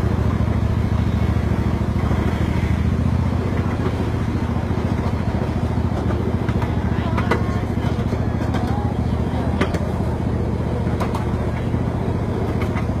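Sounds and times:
mini train engine humming: 0.0 - 13.0.

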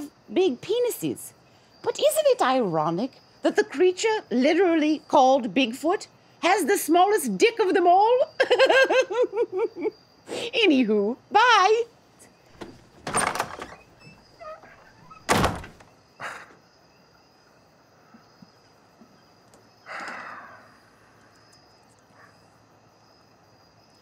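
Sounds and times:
faint high chirring: 12.3 - 16.2
wooden door opening and closing: 12.5 - 16.0.

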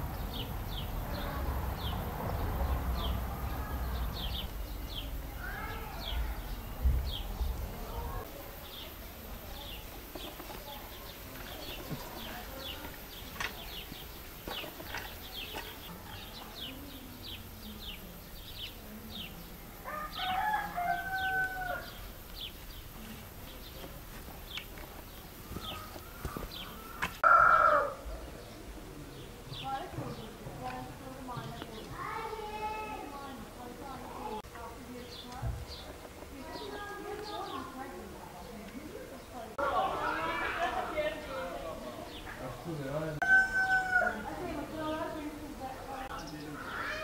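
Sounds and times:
small birds chirping: 0.0 - 27.2, 28.2 - 43.2, 43.9 - 47.0
rooster crowing: 19.8 - 22.0, 26.7 - 28.0, 43.2 - 44.4.

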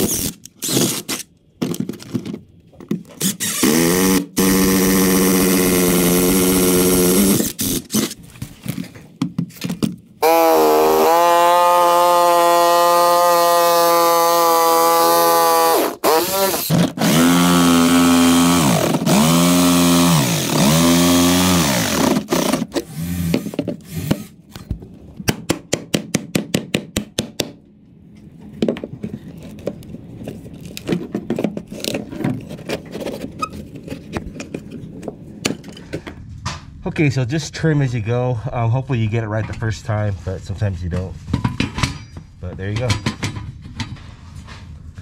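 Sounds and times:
jigsaw cutting wood: 3.2 - 8.2, 10.2 - 24.4.

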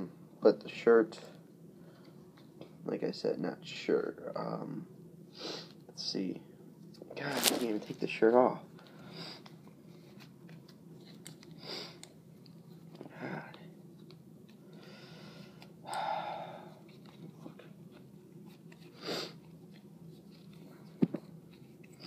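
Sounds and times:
steady low hum: 0.0 - 22.0
plastic figure handling: 7.0 - 8.1.

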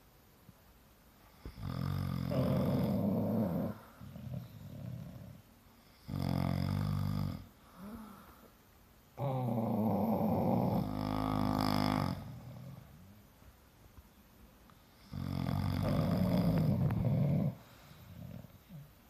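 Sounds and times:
quiet breathing: 1.1 - 13.3, 14.6 - 19.0
man and dog snoring: 1.3 - 8.2, 9.2 - 13.0, 15.0 - 18.9.

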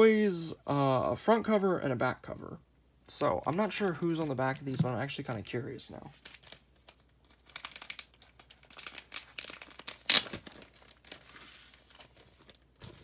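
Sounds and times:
plastic bag crinkling: 3.5 - 13.0.

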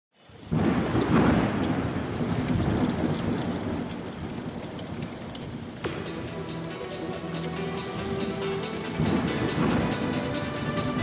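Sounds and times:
steady rain: 0.1 - 11.0
thunder rumbling: 0.5 - 11.0
music: 5.8 - 11.0.

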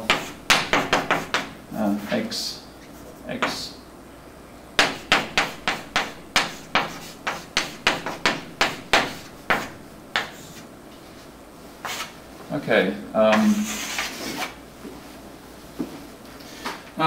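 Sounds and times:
chalk tapping on a blackboard: 0.0 - 1.6, 4.8 - 10.6.

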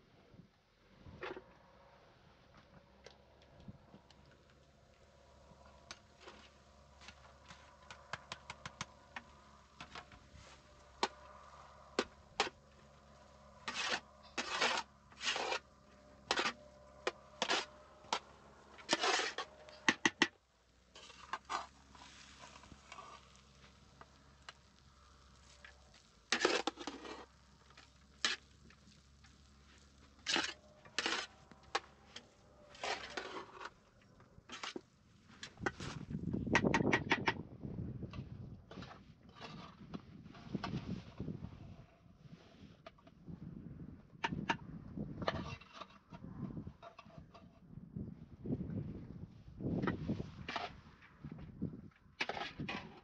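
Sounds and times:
scraping strokes: 6.2 - 20.2, 24.4 - 28.9, 29.8 - 33.8.

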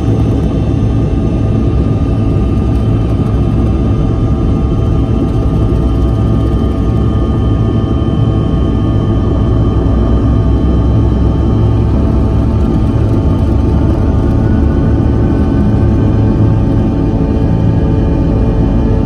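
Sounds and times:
jet cabin low rumble: 0.0 - 19.0
jet engine whine: 0.0 - 19.0.

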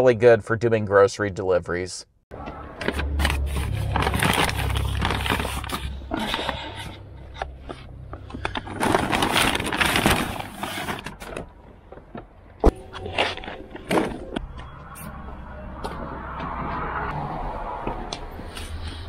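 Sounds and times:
low rumble: 2.3 - 9.8
paper bags rustling: 2.8 - 7.0, 7.6 - 12.3.

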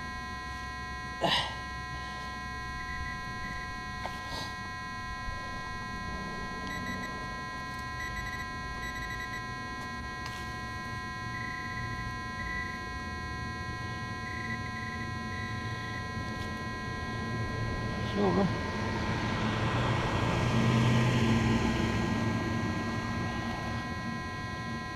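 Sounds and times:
steady electronic tones: 0.0 - 24.9
metal detector beeps: 1.7 - 18.5.

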